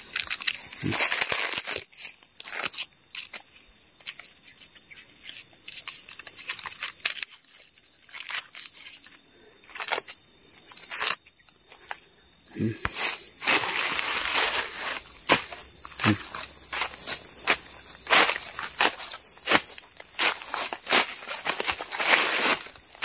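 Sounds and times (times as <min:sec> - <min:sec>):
insects droning: 0:00.0 - 0:23.0
dry leaves crackling and tearing: 0:00.1 - 0:03.3, 0:08.1 - 0:09.0, 0:12.8 - 0:23.0.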